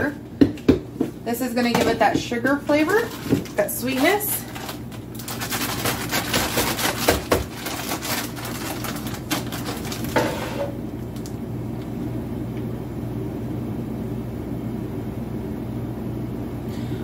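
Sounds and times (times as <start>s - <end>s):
kitchen items clattering: 0.0s - 10.8s
steady low hum: 0.0s - 17.0s.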